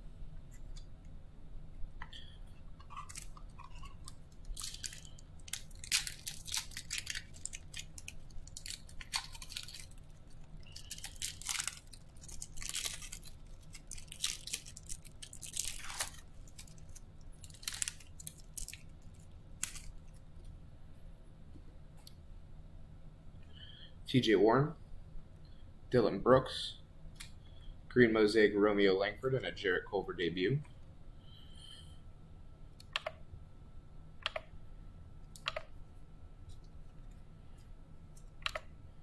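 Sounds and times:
plastic wrapper crinkling and tearing: 0:02.8 - 0:20.2.

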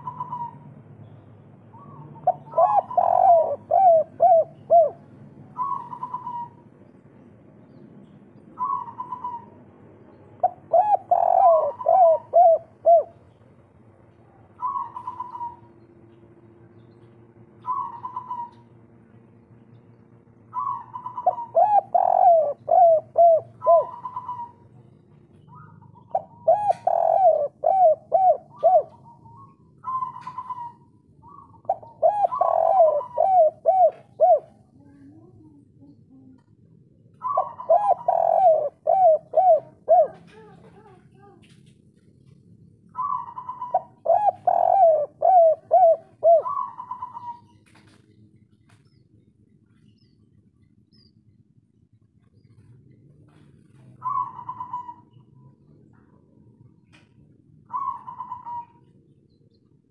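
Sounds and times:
dove cooing: 0:00.0 - 0:00.7, 0:01.7 - 0:06.7, 0:08.6 - 0:09.8, 0:10.4 - 0:13.3, 0:14.5 - 0:15.8, 0:17.0 - 0:18.8, 0:20.5 - 0:41.6, 0:42.2 - 0:48.1, 0:52.5 - 0:59.0.

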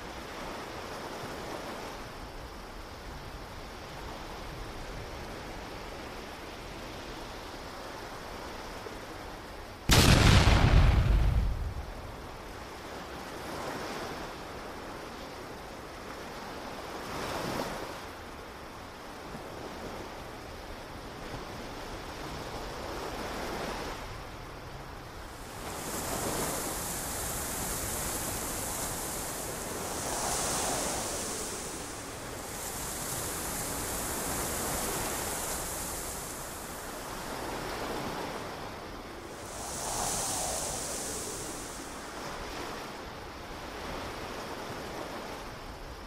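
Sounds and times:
ocean surf washing onto beach: 0:23.0 - 0:46.0
bright hiss: 0:25.3 - 0:37.7, 0:38.9 - 0:43.3.

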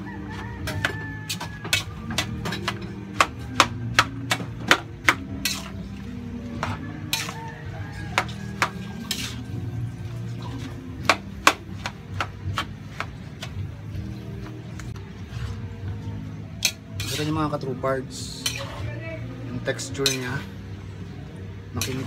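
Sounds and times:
metal spatula scraping a wok: 0:00.3 - 0:13.7, 0:16.6 - 0:19.0, 0:19.6 - 0:20.7, 0:21.7 - 0:22.0.

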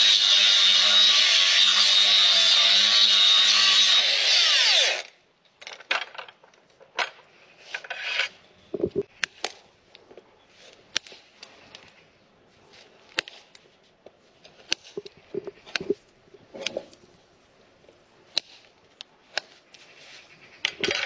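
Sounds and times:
angle grinder whine: 0:00.0 - 0:05.1
hand tools scraping hoof: 0:07.6 - 0:08.5.

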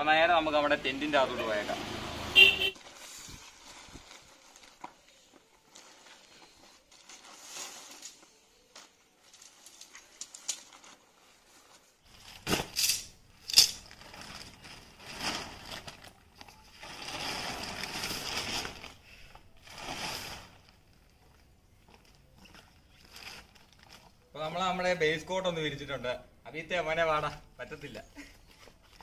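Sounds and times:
tent fabric rustling: 0:02.7 - 0:12.8.

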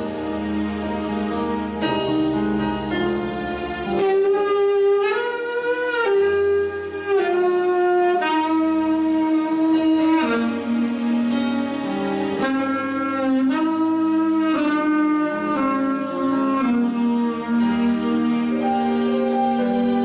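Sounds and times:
alto saxophone melody: 0:00.0 - 0:20.0
sustained keyboard chords: 0:00.0 - 0:20.0.

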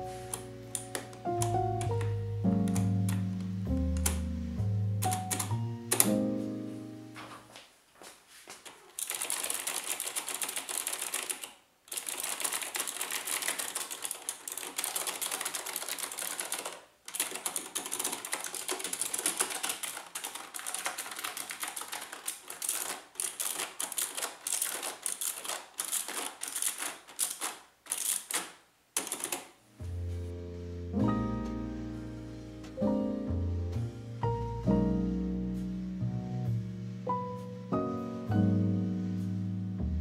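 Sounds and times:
mechanical keyboard typing: 0:00.0 - 0:03.3, 0:03.9 - 0:04.2, 0:05.0 - 0:06.2, 0:08.9 - 0:29.6.

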